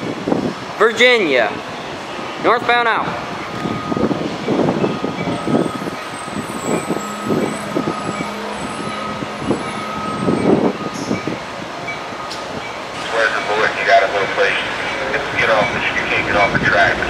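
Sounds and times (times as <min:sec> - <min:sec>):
vehicle engines running: 0:00.0 - 0:17.0
steady whine: 0:04.9 - 0:17.0.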